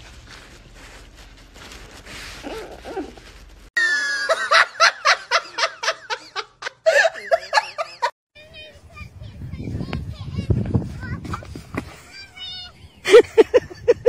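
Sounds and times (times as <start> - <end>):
person laughing hard: 3.8 - 8.1, 13.1 - 14.0.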